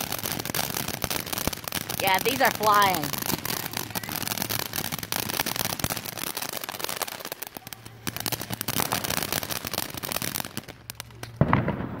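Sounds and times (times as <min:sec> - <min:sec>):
firework crackling: 0:00.0 - 0:12.0.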